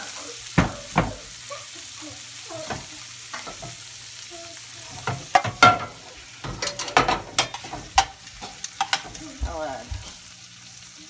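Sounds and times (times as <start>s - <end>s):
vegetables sizzling in a pan: 0.0s - 11.0s
tongs clanking against pan: 2.5s - 3.9s, 4.8s - 10.2s.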